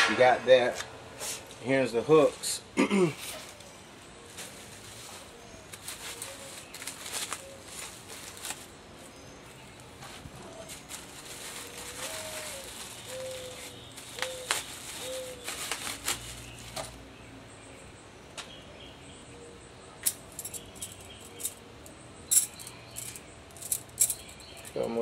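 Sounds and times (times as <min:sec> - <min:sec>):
bird cooing: 0:05.0 - 0:08.4, 0:10.0 - 0:15.8
metal hooks clinking: 0:20.0 - 0:21.6, 0:22.3 - 0:25.0.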